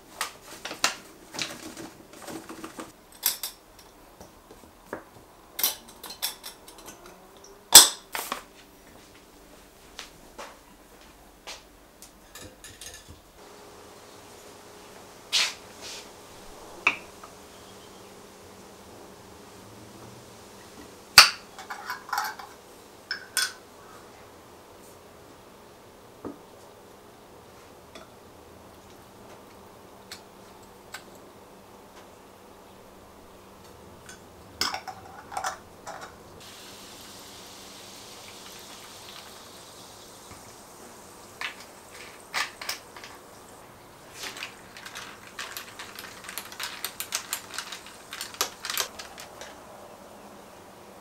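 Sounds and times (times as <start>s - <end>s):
sparkling water fizzing: 13.4s - 23.7s, 34.0s - 49.5s.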